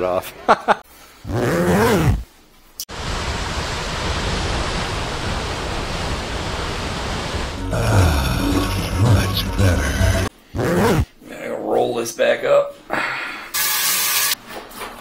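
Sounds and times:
sound sliding in pitch: 7.6s - 10.3s.

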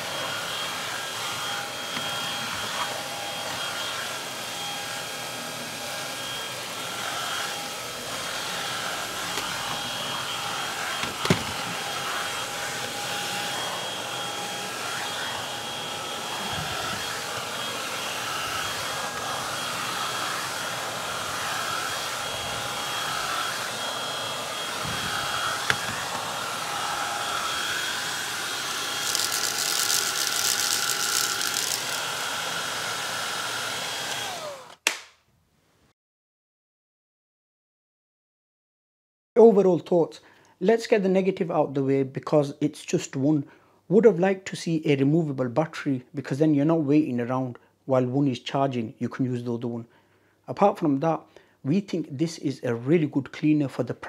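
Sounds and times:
vacuum cleaner motor whining: 0.0s - 34.8s.

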